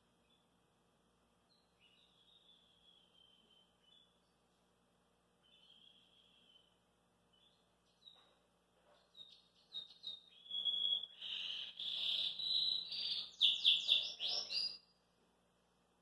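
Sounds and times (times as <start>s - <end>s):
canary singing: 1.5s - 4.3s, 5.4s - 8.4s, 9.0s - 15.0s.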